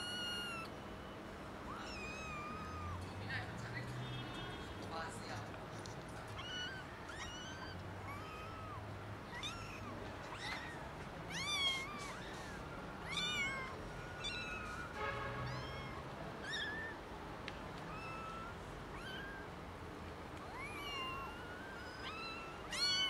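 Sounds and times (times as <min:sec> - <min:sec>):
kittens meowing: 0:00.0 - 0:00.7, 0:01.6 - 0:03.1, 0:05.8 - 0:17.1, 0:17.8 - 0:19.6, 0:20.4 - 0:23.0.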